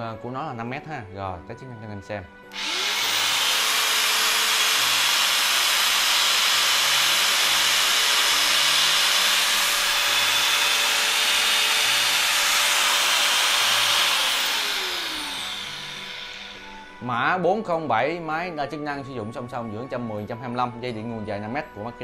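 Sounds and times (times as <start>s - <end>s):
angle grinder whining: 2.5s - 17.2s
grinder winding down: 2.5s - 17.2s.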